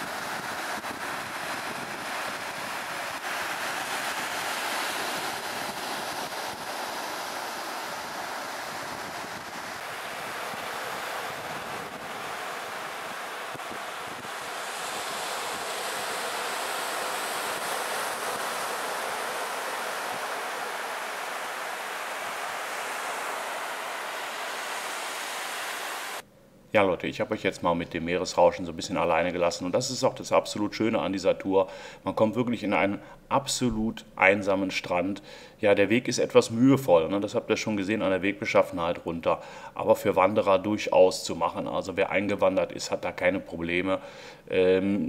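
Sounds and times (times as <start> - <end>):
waves breaking on beach: 0.0 - 26.2.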